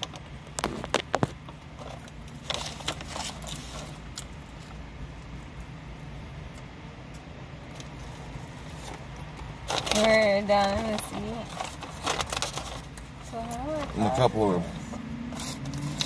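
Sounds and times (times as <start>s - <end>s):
clicks and rustles: 0.0s - 4.8s, 8.7s - 14.0s
biting and chewing: 0.0s - 10.0s, 15.0s - 16.0s.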